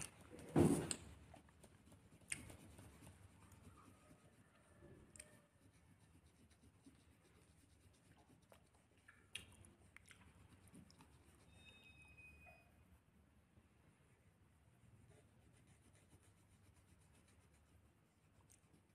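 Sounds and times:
pencil scratching on paper: 0:00.0 - 0:08.8, 0:10.3 - 0:12.0, 0:15.0 - 0:18.9.

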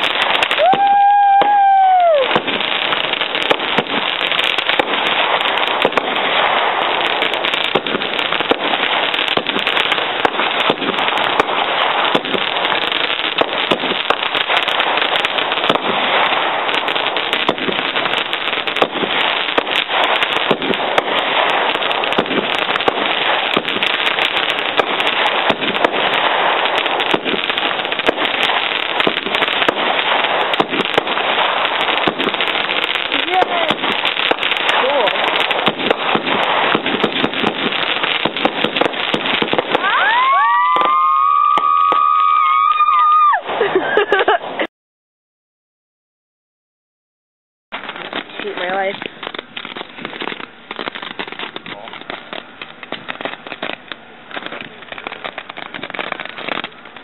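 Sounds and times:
fireworks crackling: 0:00.0 - 0:44.7, 0:47.7 - 0:57.0.

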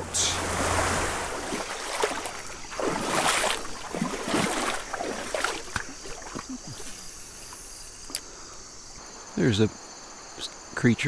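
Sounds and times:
small water splashes: 0:00.0 - 0:08.3
river water running: 0:00.0 - 0:11.0.

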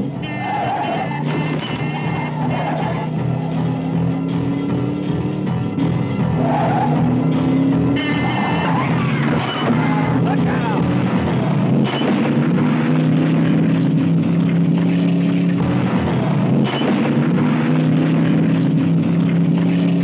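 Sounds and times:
car engine at high revs: 0:00.0 - 0:20.0.

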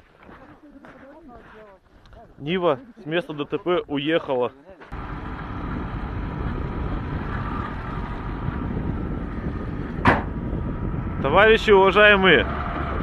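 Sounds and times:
low rumbling noise: 0:04.9 - 0:13.0.

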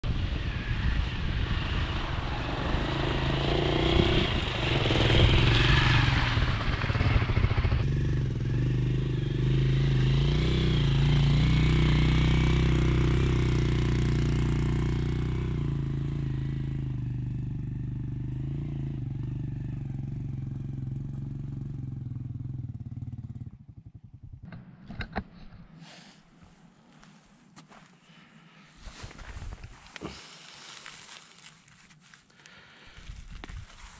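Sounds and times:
motorcycle engine running: 0:01.3 - 0:25.2, 0:32.6 - 0:33.9.

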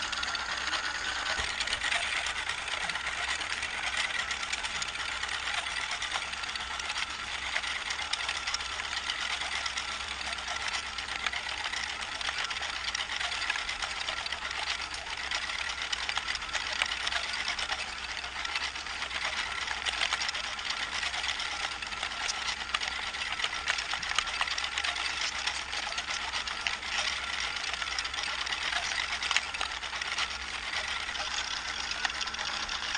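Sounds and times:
faint motor whine: 0:00.0 - 0:32.9.

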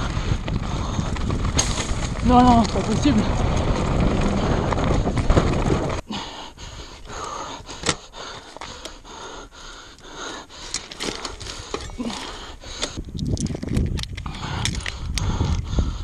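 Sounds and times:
person panting: 0:00.0 - 0:01.2, 0:06.0 - 0:13.1, 0:14.2 - 0:16.0.

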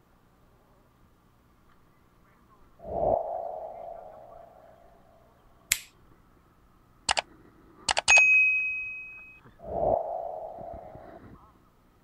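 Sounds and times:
sharp clicks: 0:05.7 - 0:06.0, 0:07.1 - 0:07.3, 0:07.9 - 0:08.2
notification bell ding: 0:08.1 - 0:09.4.

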